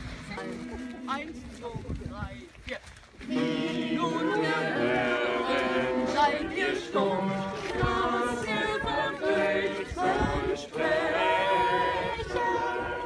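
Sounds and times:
small choir singing: 3.2 - 13.0.

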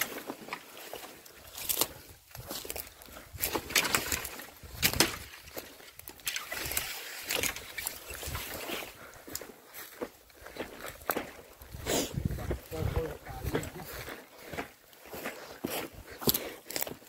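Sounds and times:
branches rustling and snapping: 0.0 - 11.7, 16.2 - 17.0.

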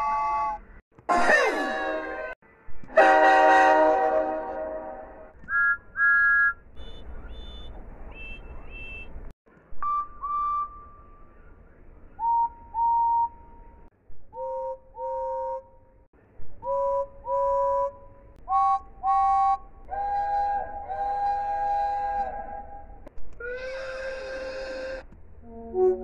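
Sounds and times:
steam locomotive whistle blasts: 1.2 - 5.3.

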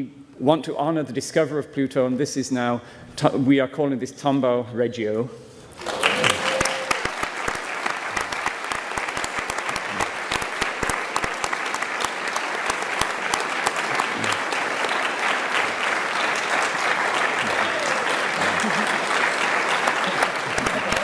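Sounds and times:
audience applauding: 5.7 - 21.0.

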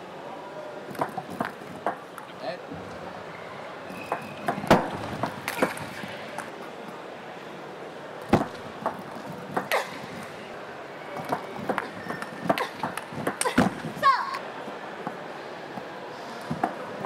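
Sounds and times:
arena background noise: 0.0 - 17.0
loud knocks: 4.1 - 6.0.

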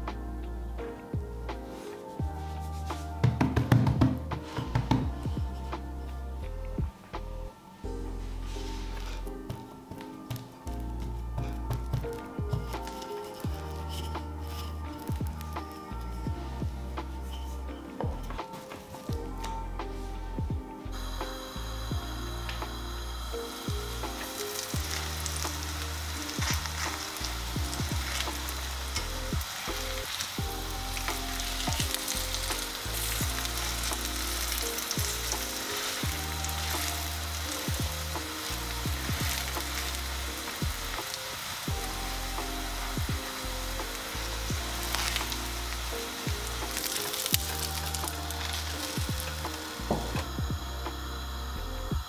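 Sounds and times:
flatbread sizzling in a skillet: 12.6 - 16.2, 21.3 - 50.4.

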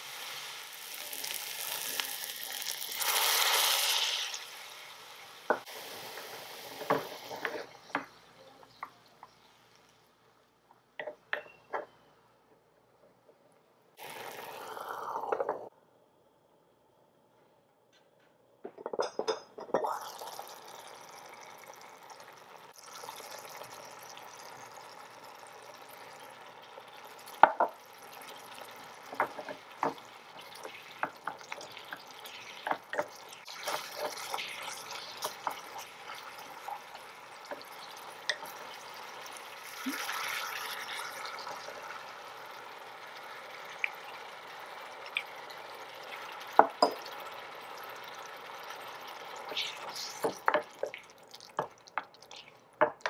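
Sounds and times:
meat sizzling in a pan: 0.0 - 7.9, 14.0 - 15.3, 19.8 - 52.6.

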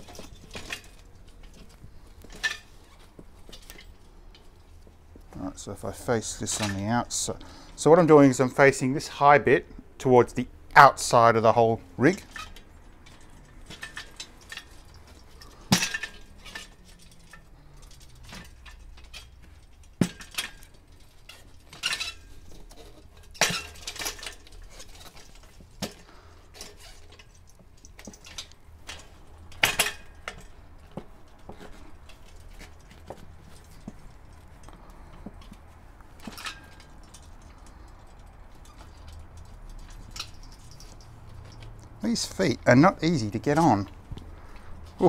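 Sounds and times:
bench parts clinking and knocking: 18.0 - 45.0.

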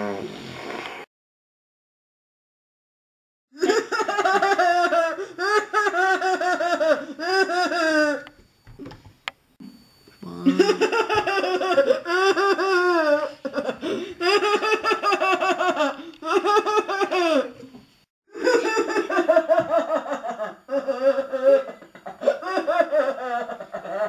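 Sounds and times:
person laughing high-pitched: 3.6 - 8.3, 10.2 - 17.6, 18.3 - 24.0.

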